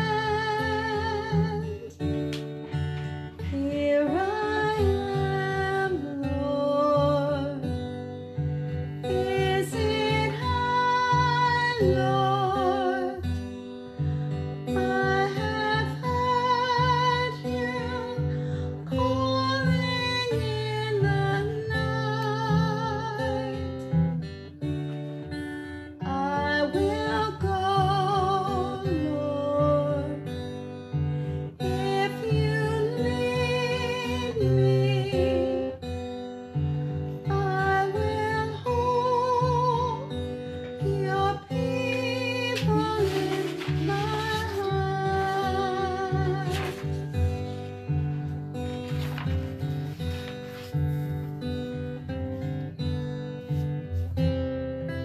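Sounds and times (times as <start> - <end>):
acoustic guitar: 0.0 - 55.0
person singing with vibrato: 9.0 - 13.4, 37.2 - 47.3.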